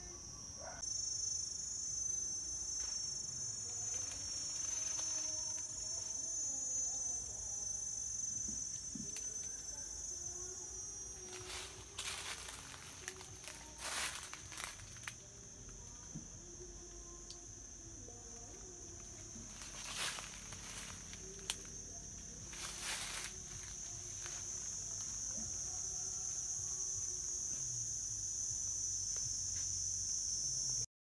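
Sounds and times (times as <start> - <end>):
insects droning: 0.0 - 30.9
footsteps on dry leaves: 11.2 - 15.1, 19.4 - 21.5, 22.5 - 25.2.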